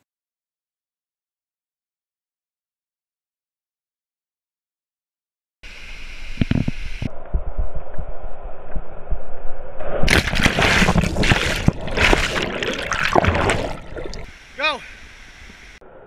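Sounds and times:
bubbling water underwater: 0:10.1 - 0:14.3
loud splash: 0:10.1 - 0:14.3.

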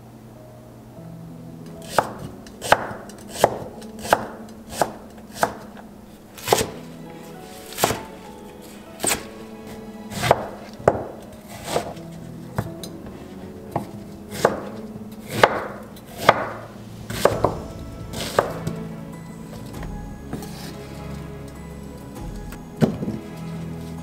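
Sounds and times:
knife chopping on wooden board: 0:06.4 - 0:06.8, 0:13.8 - 0:17.7.

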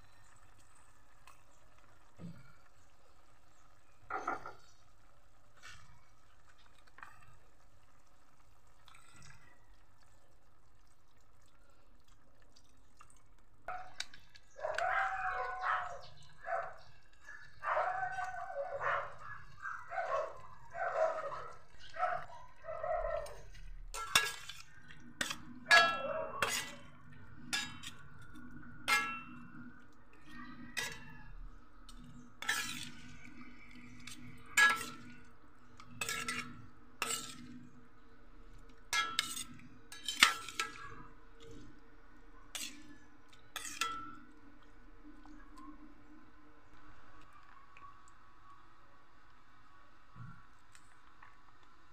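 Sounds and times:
metal spoon scraping a pot: 0:23.1 - 0:41.8, 0:42.4 - 0:44.3.

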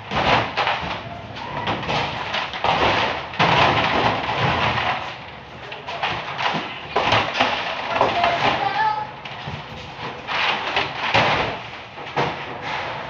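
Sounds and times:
plastic jugs knocking and scraping: 0:00.0 - 0:13.0.

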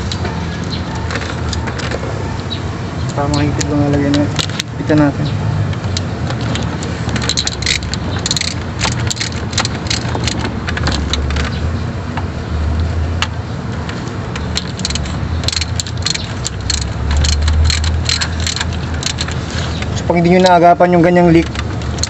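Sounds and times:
ratchet wrench clicking: 0:05.9 - 0:11.6, 0:14.4 - 0:20.6.

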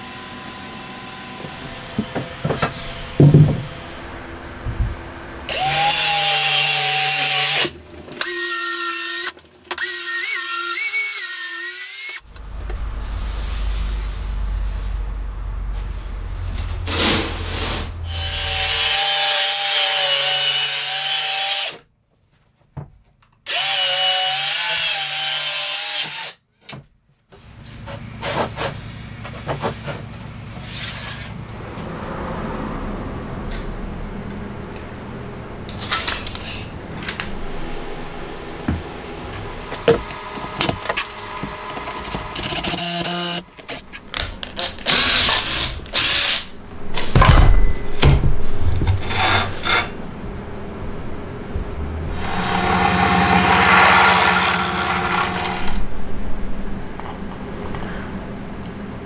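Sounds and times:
wood scraping and knocking: 0:01.5 - 0:03.9, 0:38.6 - 0:42.4, 0:46.9 - 0:50.0
circular saw cutting wood: 0:05.5 - 0:21.8, 0:23.5 - 0:26.4, 0:39.1 - 0:46.6, 0:48.8 - 0:50.6, 0:51.8 - 0:55.9.

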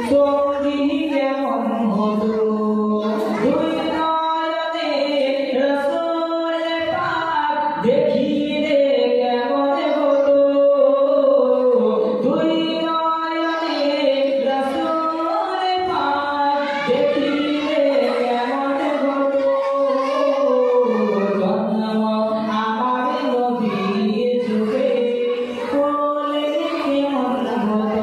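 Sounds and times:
man singing into a microphone: 0:00.0 - 0:28.0.

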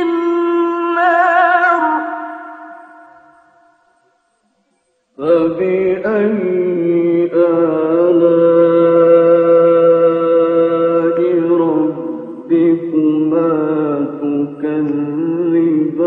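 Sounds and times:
man chanting a recitation: 0:05.2 - 0:16.0.

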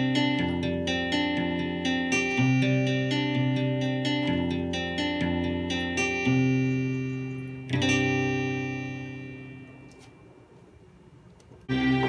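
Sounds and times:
plucked guitar chords on keyboard: 0:00.0 - 0:10.1.

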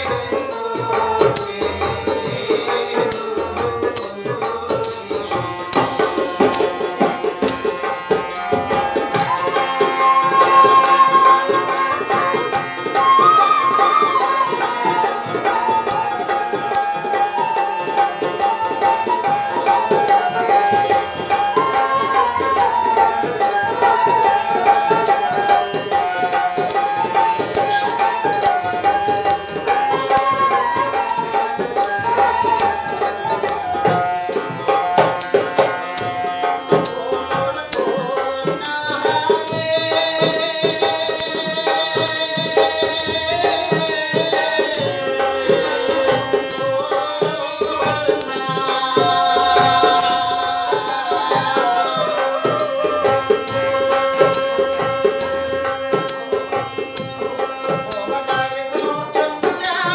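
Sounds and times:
flute melody: 0:00.0 - 0:38.3
harmonium: 0:00.0 - 0:59.9.

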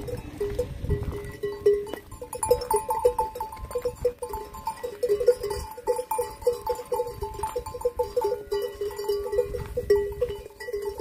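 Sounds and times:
goat bells clanking: 0:00.0 - 0:11.0.

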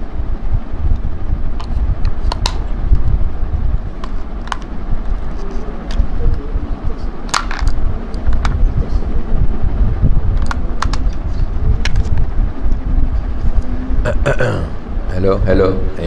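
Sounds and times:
loud low rumble: 0:07.8 - 0:16.0.

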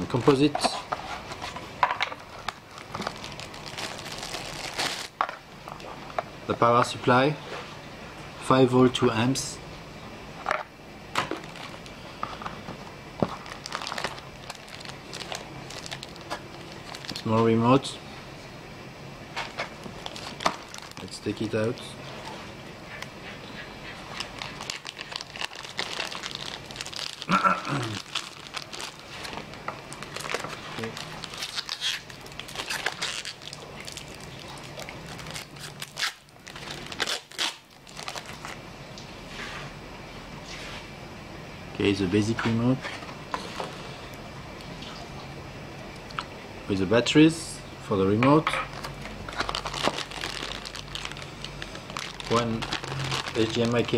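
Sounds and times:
plastic bag crinkling: 0:02.2 - 0:05.4, 0:11.2 - 0:12.0, 0:13.2 - 0:17.4, 0:19.5 - 0:21.9, 0:24.1 - 0:38.6, 0:48.7 - 0:53.9.

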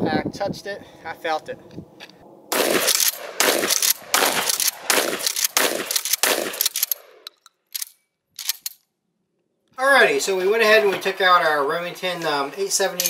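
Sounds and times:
shotgun shots: 0:02.5 - 0:07.2.

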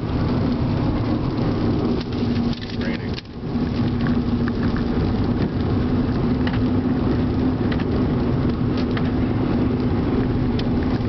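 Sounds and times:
car engine and road drone: 0:00.0 - 0:11.0.

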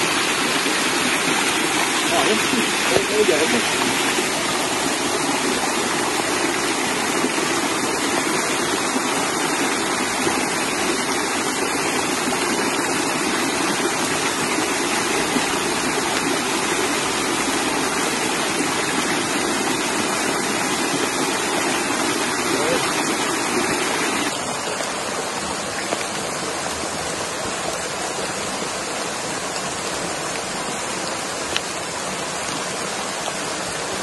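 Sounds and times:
stream water rushing: 0:00.0 - 0:34.0.

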